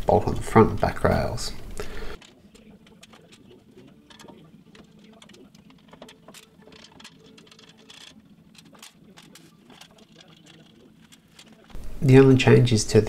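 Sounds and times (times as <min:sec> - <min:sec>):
tools clicking on metal: 0:02.2 - 0:11.8.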